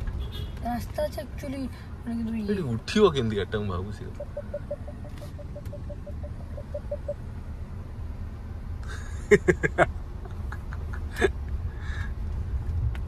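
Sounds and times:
car moving slowly rumble: 0.0s - 13.0s
rapid even beeps: 4.0s - 7.3s.

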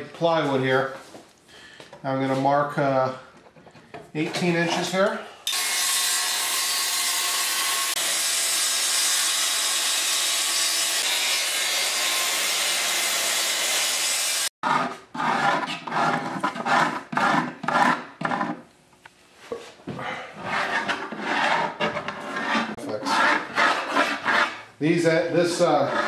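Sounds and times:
circular saw cutting plywood: 5.5s - 18.6s, 20.4s - 24.6s, 25.6s - 26.0s.

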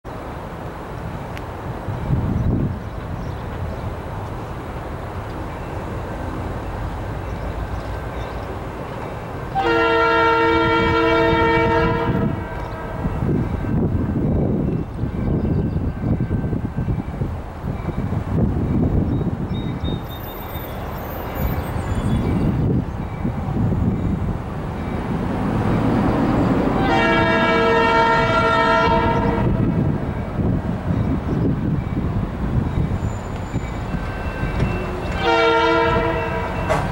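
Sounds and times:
locomotive air horn blast: 9.5s - 13.1s, 26.7s - 29.8s, 34.8s - 36.8s.

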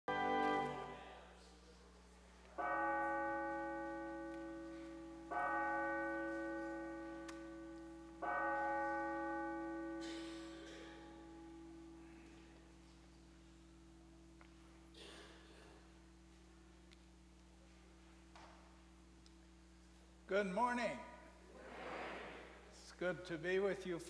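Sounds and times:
church bell tolling: 2.6s - 12.8s.

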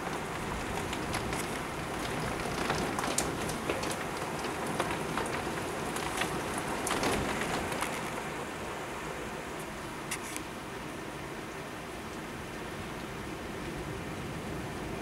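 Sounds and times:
raindrops ticking close by: 0.0s - 8.3s
torrential rain hissing: 0.0s - 15.0s.

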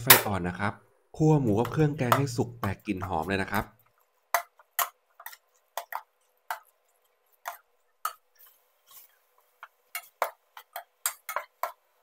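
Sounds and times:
metal spoon scraping a pot: 9.9s - 11.8s.

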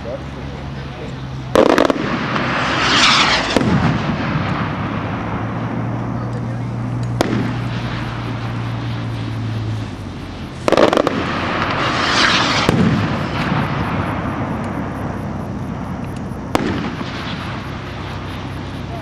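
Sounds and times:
low hum: 0.0s - 19.0s
rocket hissing going up: 1.4s - 6.2s, 6.8s - 19.0s
sharp crack: 1.4s - 19.0s
rocket shell bursting bang: 1.6s - 5.7s, 7.1s - 8.6s, 10.6s - 14.7s, 16.5s - 17.7s.

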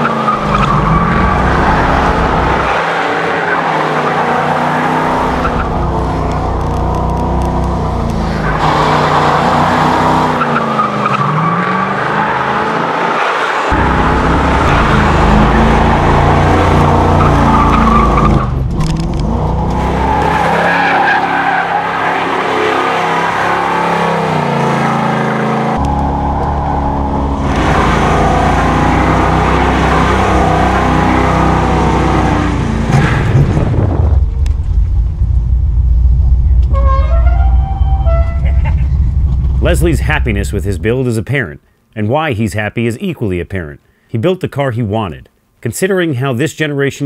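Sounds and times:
tyres squealing on asphalt: 0.0s - 6.4s, 8.2s - 18.6s, 19.6s - 32.3s, 36.7s - 39.0s
car engines revving: 0.0s - 36.8s, 37.6s - 41.0s.

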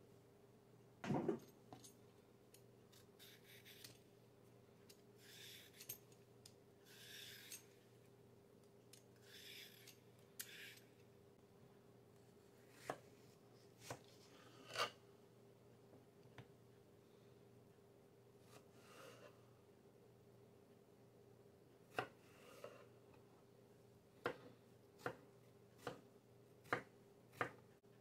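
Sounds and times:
knife knocks on wooden board: 1.0s - 1.4s
peeler scraping cucumber skin: 3.2s - 3.9s.

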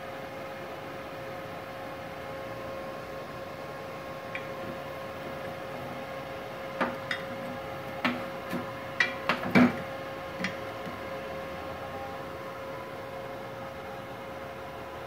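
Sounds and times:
welding machine hum: 3.4s - 12.5s
torch clicking and knocking on metal: 6.8s - 11.0s.

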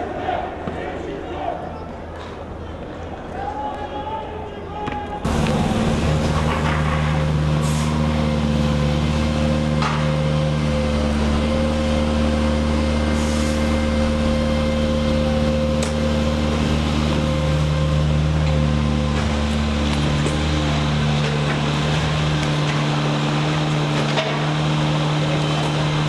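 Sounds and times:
heavy vehicle engine running: 5.2s - 26.0s.

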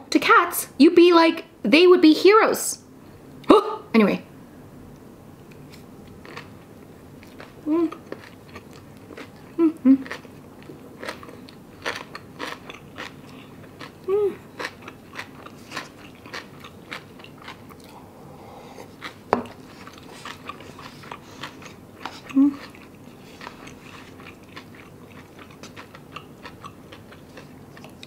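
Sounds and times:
chewing food: 5.5s - 18.0s, 18.7s - 28.0s
person humming: 7.6s - 8.0s, 9.5s - 10.1s, 14.0s - 14.4s, 22.2s - 22.7s.

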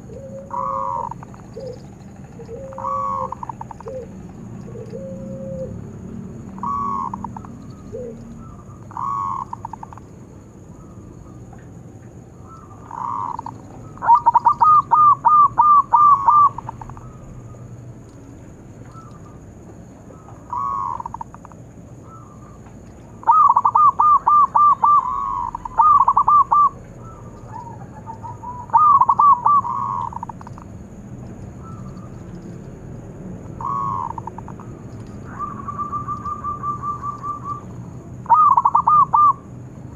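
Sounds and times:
dove cooing: 0.0s - 17.8s, 18.4s - 32.6s, 33.4s - 39.6s.

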